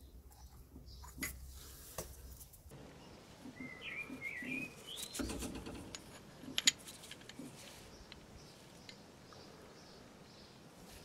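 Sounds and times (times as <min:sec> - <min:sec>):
bird chirping: 0:00.0 - 0:01.2, 0:02.2 - 0:11.0
steel tools clicking and knocking: 0:05.0 - 0:07.5.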